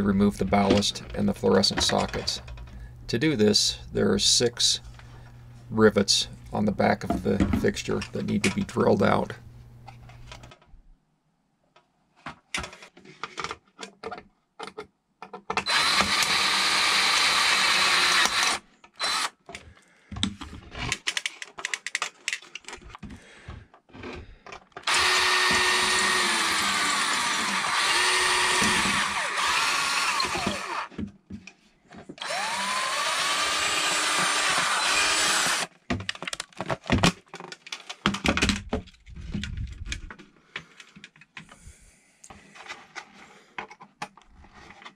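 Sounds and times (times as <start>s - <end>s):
cordless drill drilling rivets: 15.5s - 19.4s, 24.8s - 30.9s, 32.2s - 35.8s
clicking and clattering: 20.2s - 23.2s.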